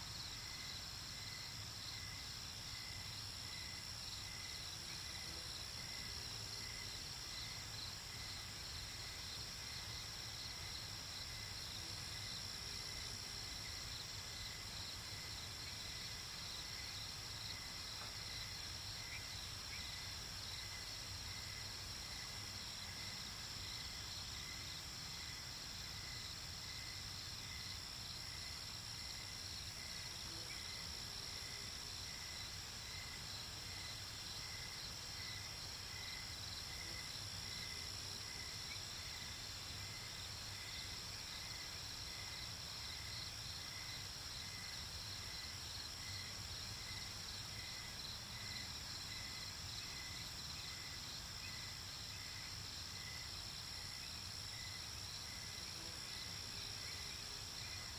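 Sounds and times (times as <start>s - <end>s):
crickets chirping: 0.0s - 57.9s.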